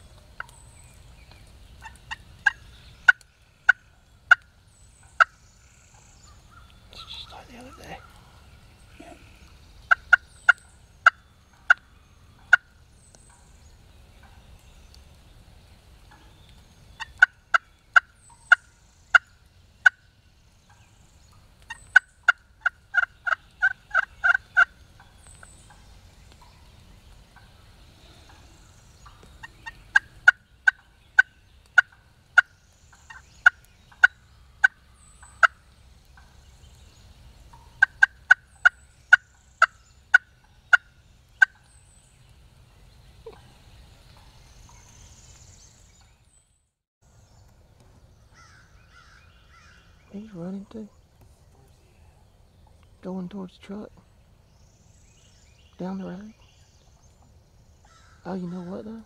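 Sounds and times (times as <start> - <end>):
turkey yelping: 1.8 - 4.4, 6.5 - 11.8, 12.4 - 12.7, 21.7 - 25.1, 33.1 - 35.6, 37.5 - 41.7.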